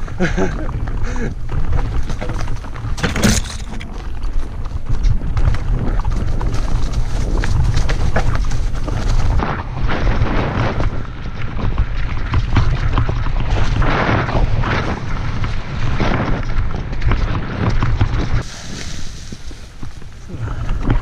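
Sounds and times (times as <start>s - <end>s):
tyres crunching over gravel: 0.0s - 12.3s
bike rattling over bumps: 0.0s - 21.0s
wind buffeting microphone: 0.0s - 21.0s.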